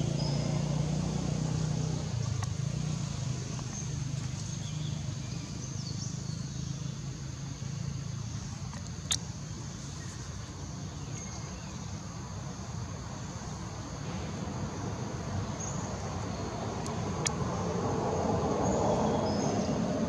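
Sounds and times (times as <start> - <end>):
high insect drone: 0.0 - 20.0.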